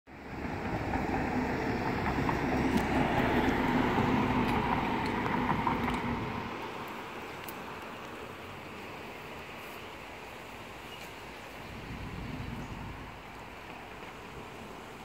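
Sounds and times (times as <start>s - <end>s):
truck driving past: 0.2s - 6.7s.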